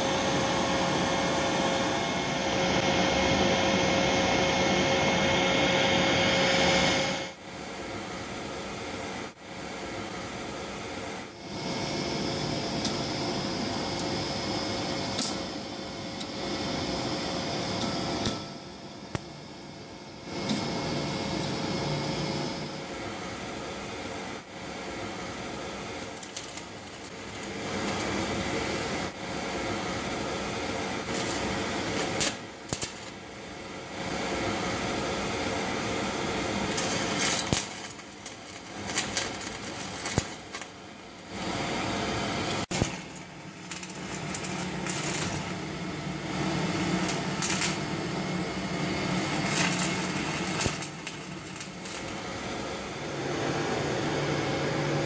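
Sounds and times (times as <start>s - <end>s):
steady hum: 0.0s - 55.0s
welding arc crackling hiss: 10.6s - 53.3s.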